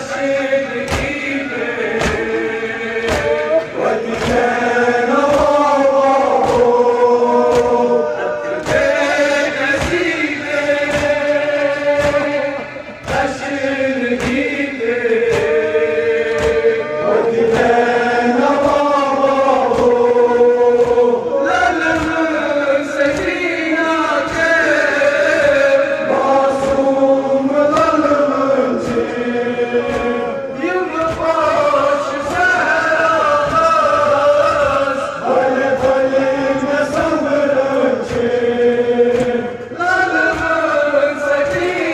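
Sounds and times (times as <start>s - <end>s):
men chanting a lament: 0.0s - 41.9s
chest-beating slaps: 0.7s - 6.8s, 7.4s - 7.9s, 8.6s - 16.8s, 21.7s - 22.4s.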